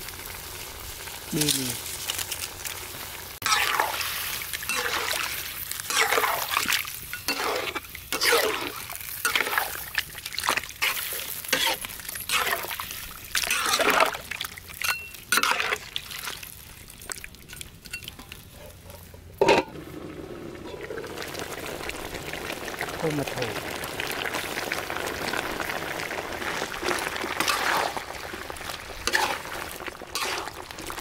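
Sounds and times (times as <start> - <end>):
wet sloshes and splashes: 12.4 - 14.7, 26.4 - 31.0.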